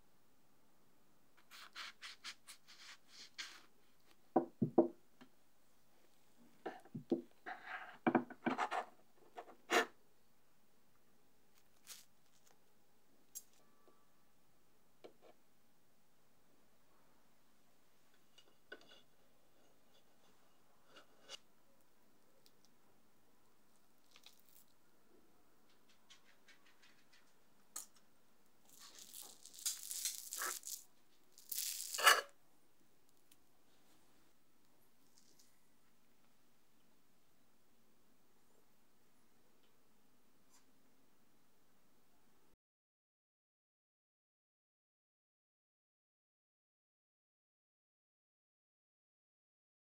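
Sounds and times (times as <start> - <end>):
wet squishing and crackling: 28.8 - 30.8.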